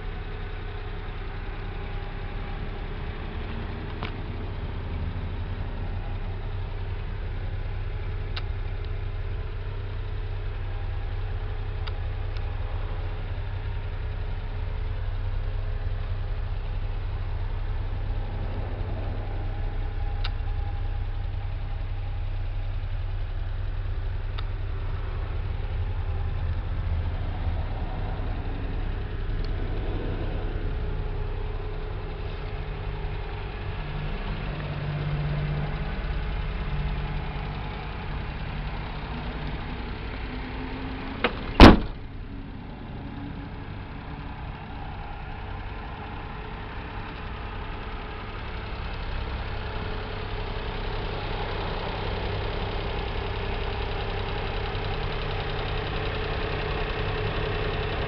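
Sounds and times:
small engine idling: 0:00.0 - 0:58.0
car door slamming: 0:41.1 - 0:42.3.

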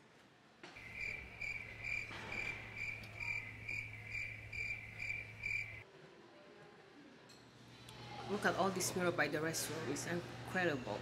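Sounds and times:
crickets chirping: 0:00.8 - 0:05.8.

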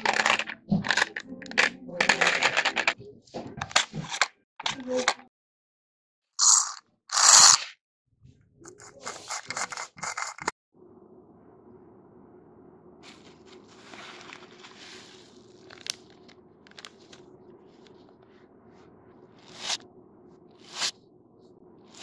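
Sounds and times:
plastic packets crinkling: 0:15.4 - 0:17.2.

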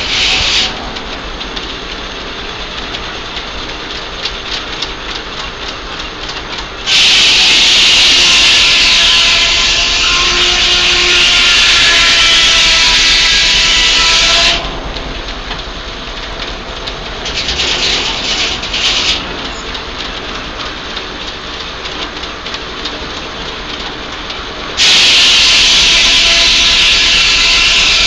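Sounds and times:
sawmill running: 0:00.0 - 0:28.0
clatter: 0:14.7 - 0:24.4.

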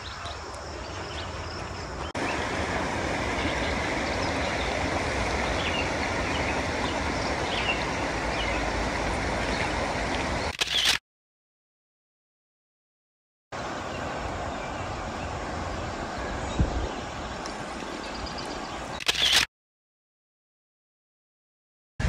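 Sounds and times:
wind rumbling on microphone: 0:00.0 - 0:10.5, 0:13.7 - 0:19.0
creek rapids rushing: 0:01.4 - 0:10.5.

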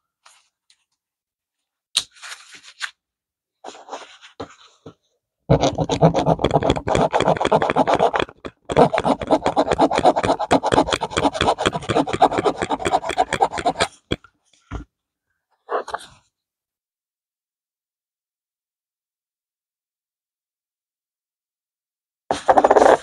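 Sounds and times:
metal file rasping on coin: 0:05.5 - 0:14.2.

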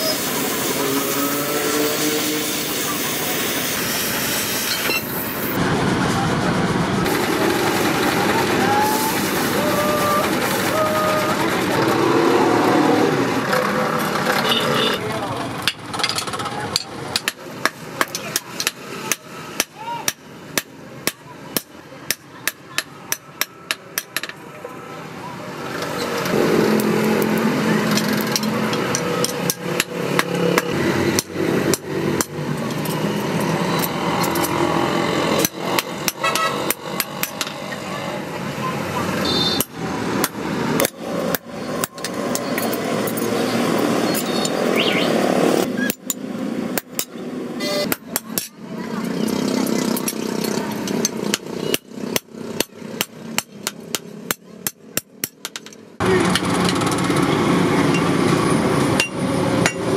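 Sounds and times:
steady background noise: 0:00.0 - 0:59.9
hammer striking metal on anvil: 0:59.0 - 0:59.9.

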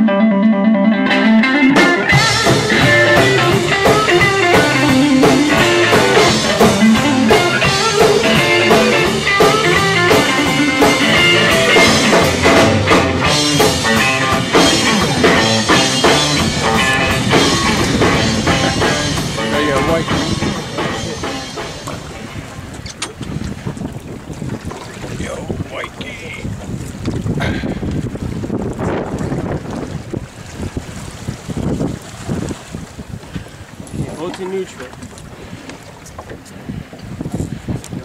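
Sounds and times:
held electric guitar chord: 0:00.0 - 0:21.9
blues-rock band playing: 0:00.0 - 0:22.9.

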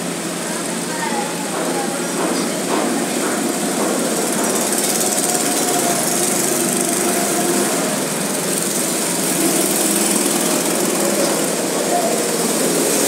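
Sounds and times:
go-kart engines buzzing: 0:00.0 - 0:13.0.

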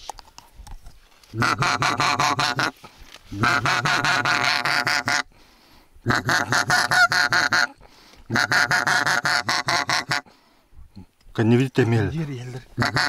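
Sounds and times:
goose honking: 0:01.4 - 0:02.7, 0:03.4 - 0:05.3, 0:06.1 - 0:10.2, 0:12.8 - 0:13.0.

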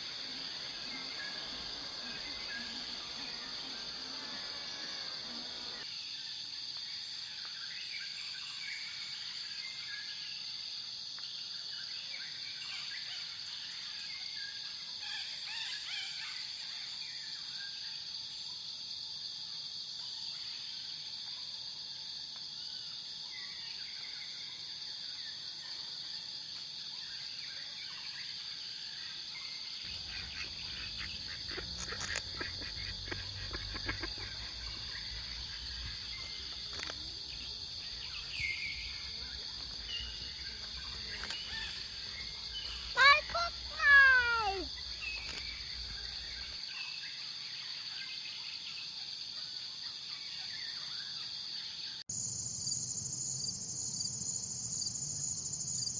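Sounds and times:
insects chirring: 0:00.0 - 0:55.9
bird calls: 0:29.9 - 0:46.6.

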